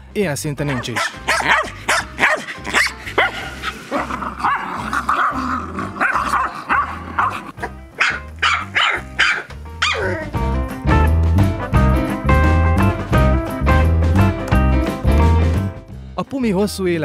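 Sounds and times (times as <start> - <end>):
background music with bass beat: 0.6 - 4.1, 5.6 - 16.2
dog barking: 0.7 - 5.4, 6.0 - 10.2.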